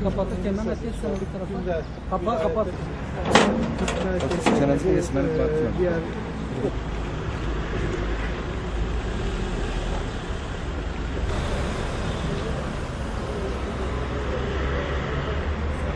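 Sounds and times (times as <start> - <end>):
truck driving past: 6.8 - 15.9.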